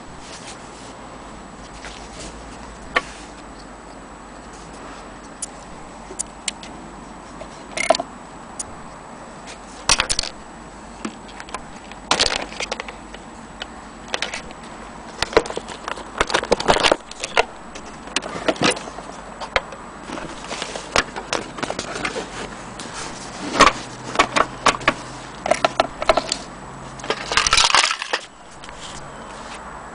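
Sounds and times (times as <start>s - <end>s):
plastic parts and cable rattling: 9.5s - 10.4s, 11.0s - 29.1s.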